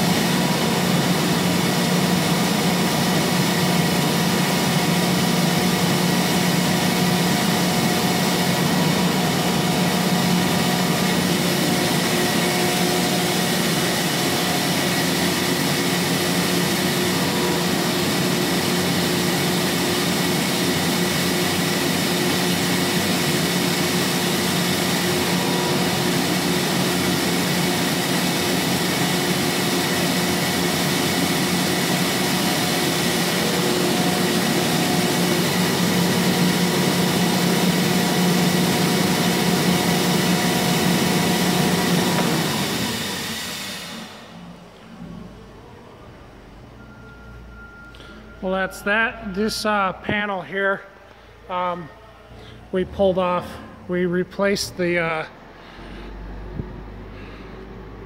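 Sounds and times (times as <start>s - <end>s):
air compressor hum: 0.0s - 58.0s.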